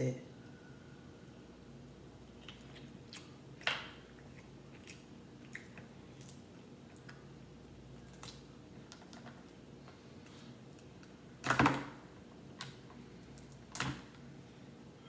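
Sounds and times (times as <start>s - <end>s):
crab shells cracking: 8.0s - 9.2s.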